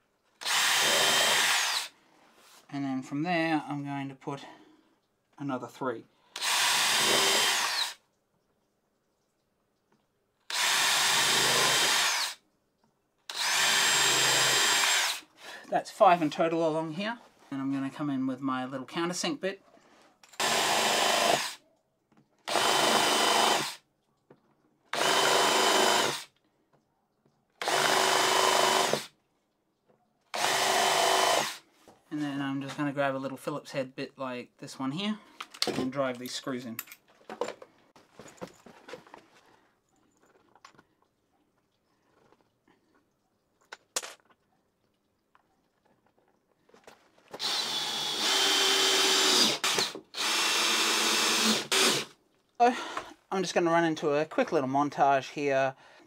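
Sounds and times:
power drill countersinking wood: 0.4s - 1.9s, 6.4s - 8.0s, 10.5s - 12.4s, 13.3s - 15.3s, 20.2s - 21.6s, 22.4s - 23.8s, 24.9s - 26.4s, 27.6s - 29.1s, 30.3s - 31.6s, 47.3s - 52.2s.

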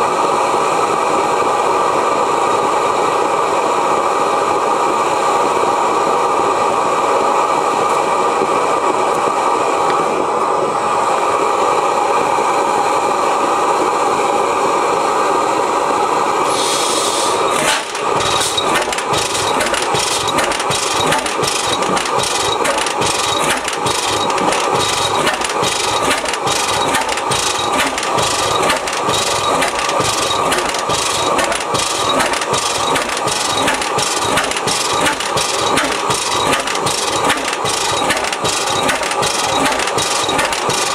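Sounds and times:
brief hiss: 16.4s - 17.8s
engine running with regular beat: 17.1s - 40.9s.

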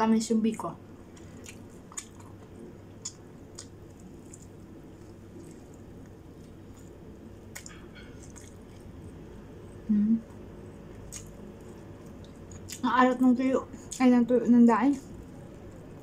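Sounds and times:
low room hum: 0.0s - 16.0s
quiet chewing: 1.0s - 12.9s.

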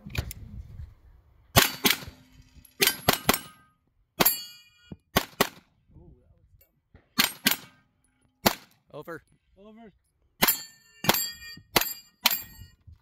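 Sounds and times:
steel plates ringing: 2.6s - 4.9s, 10.4s - 12.7s.

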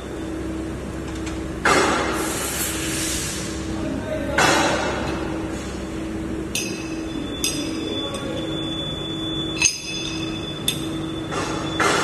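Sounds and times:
sharp metallic clinks: 9.4s - 11.4s.

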